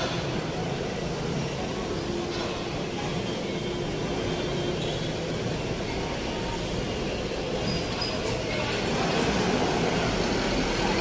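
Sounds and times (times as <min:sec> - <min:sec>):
motorcycles passing: 0:02.8 - 0:11.0
cars passing: 0:08.5 - 0:11.0.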